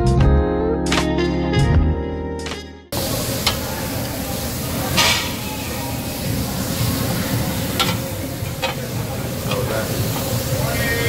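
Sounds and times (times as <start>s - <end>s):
food sizzling on a grill: 3.0s - 11.0s.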